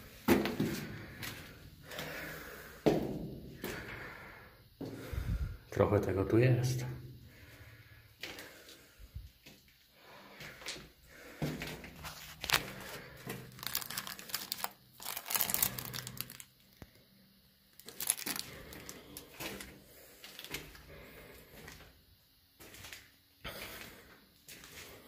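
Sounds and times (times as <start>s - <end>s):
crinkling and crunching: 11.3s - 16.9s, 17.7s - 20.9s.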